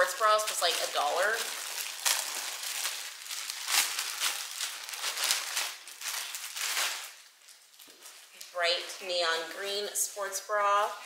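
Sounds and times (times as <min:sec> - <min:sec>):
plastic bags crinkling: 0:00.0 - 0:10.9.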